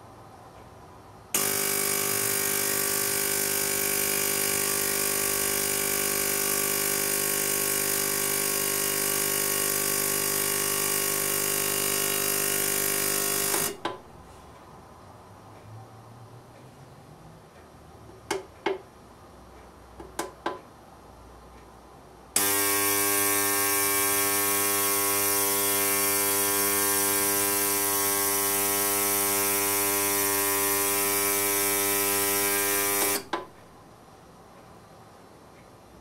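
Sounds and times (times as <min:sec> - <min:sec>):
ultrasonic cleaner buzzing: 0:01.4 - 0:14.0, 0:22.4 - 0:33.6.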